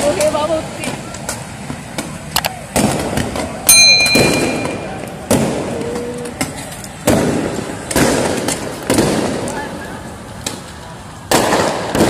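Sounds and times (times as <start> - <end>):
loud explosive bangs: 4.0 - 5.7, 7.0 - 9.5, 11.3 - 12.0.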